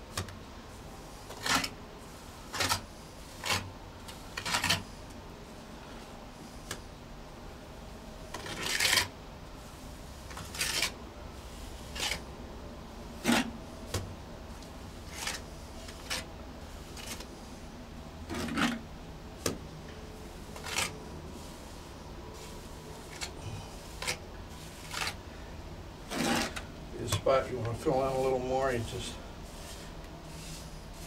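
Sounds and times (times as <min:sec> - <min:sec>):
trowel scraping cement: 0:01.2 - 0:01.8, 0:02.5 - 0:04.9, 0:08.3 - 0:09.1, 0:10.3 - 0:11.0, 0:11.8 - 0:12.2, 0:13.2 - 0:13.5, 0:15.1 - 0:17.3, 0:18.3 - 0:18.8, 0:20.4 - 0:21.8, 0:22.4 - 0:25.2, 0:26.1 - 0:31.0.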